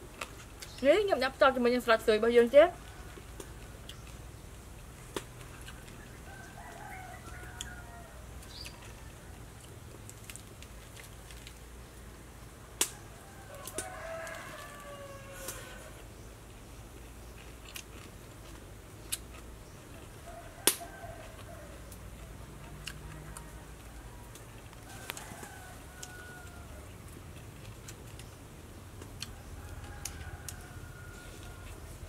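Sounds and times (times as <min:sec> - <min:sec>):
low steady background noise: 0:00.0 - 0:32.0
rooster crowing: 0:05.8 - 0:09.6, 0:12.9 - 0:16.1, 0:20.2 - 0:27.0, 0:29.3 - 0:32.0.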